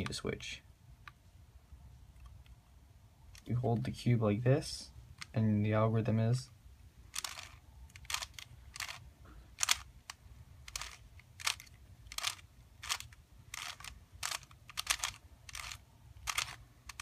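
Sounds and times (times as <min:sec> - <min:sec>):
puzzle cube turning clicks: 0:05.1 - 0:05.4, 0:07.1 - 0:17.0.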